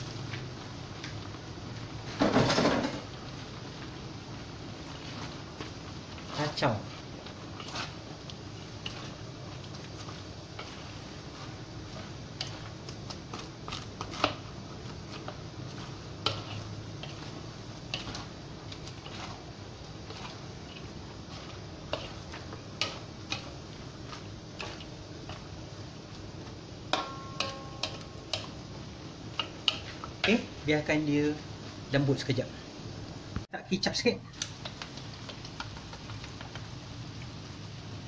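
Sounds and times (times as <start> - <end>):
steady frying hiss: 0.0 - 38.0
spatula scraping against wok: 4.5 - 28.7.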